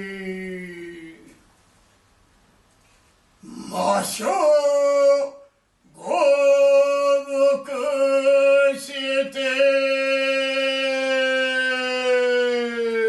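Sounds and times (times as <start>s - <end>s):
man chanting a long note: 3.4s - 13.0s.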